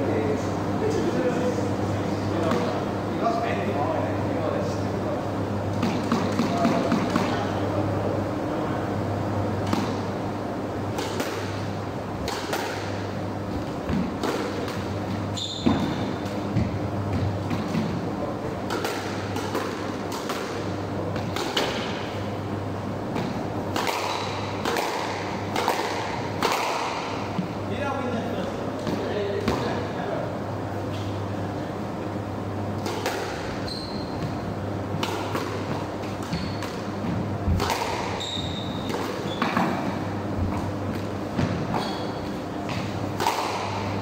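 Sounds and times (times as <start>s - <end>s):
squash ball hits: 5.7s - 7.4s, 10.9s - 18.0s, 18.6s - 22.1s, 23.1s - 27.5s, 32.8s - 44.0s.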